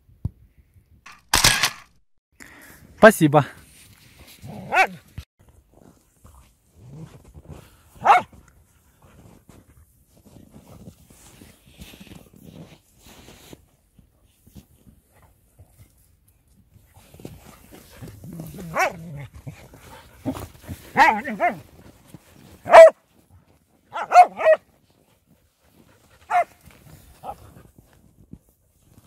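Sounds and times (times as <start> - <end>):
dog barking: 4.6 - 5.0, 8.0 - 8.3, 18.7 - 19.0, 21.0 - 21.6, 22.6 - 23.0, 23.9 - 24.7, 26.3 - 26.6.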